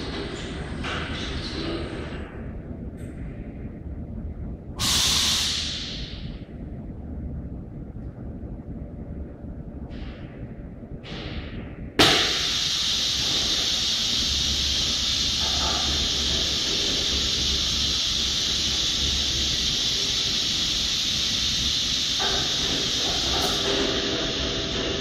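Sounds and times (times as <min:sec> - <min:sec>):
low machine hum: 0:00.0 - 0:25.0
loud hiss of rushing air: 0:04.8 - 0:06.4, 0:11.0 - 0:25.0.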